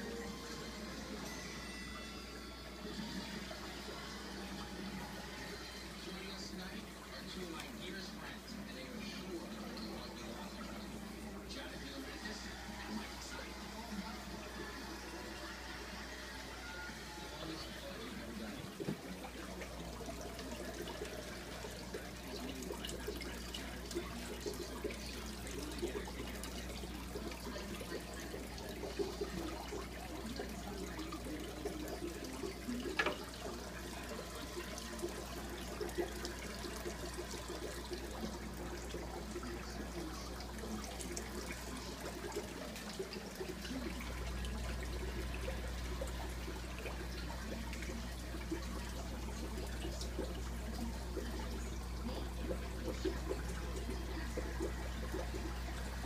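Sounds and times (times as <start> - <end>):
water bubbling and gurgling: 2.6 - 56.0.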